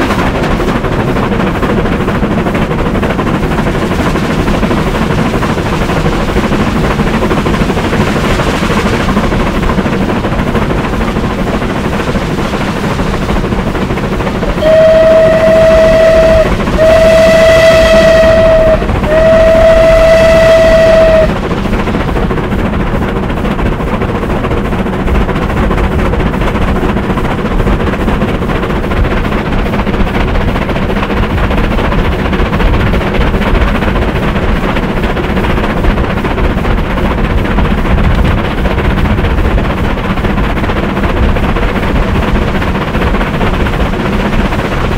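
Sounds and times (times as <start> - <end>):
steam locomotive running: 0.0 - 44.9
steam whistle blasts: 14.6 - 21.3.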